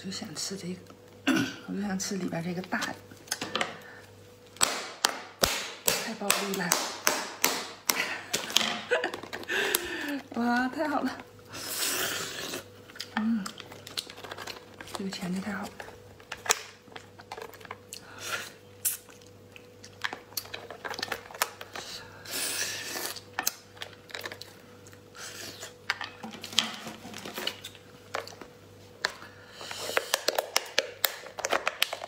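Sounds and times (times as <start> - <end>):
lobster shell cracking: 12.8 - 15.1, 18.8 - 21.8, 29.9 - 32.0.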